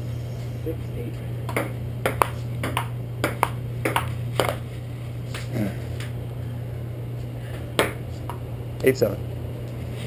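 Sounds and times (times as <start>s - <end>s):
steady low hum: 0.0s - 10.0s
ping pong ball clicking and bouncing: 1.5s - 4.6s.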